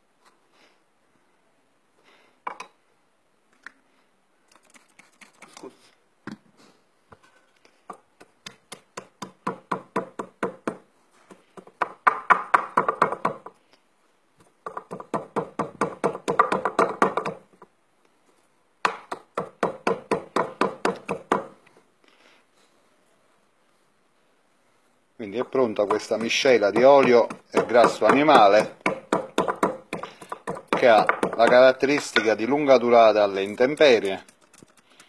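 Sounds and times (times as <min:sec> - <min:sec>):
pestle pounding in a mortar: 0:08.2 - 0:13.6, 0:14.6 - 0:17.5, 0:18.8 - 0:21.6, 0:25.6 - 0:32.4.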